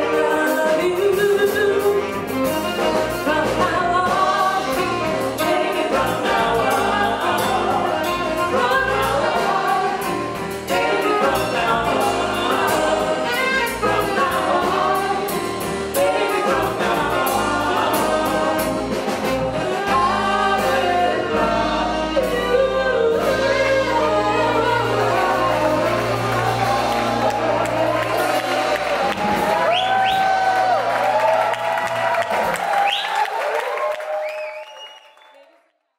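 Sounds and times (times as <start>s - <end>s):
woman singing: 0.0s - 15.2s, 19.6s - 28.8s
live band playing: 0.0s - 33.8s.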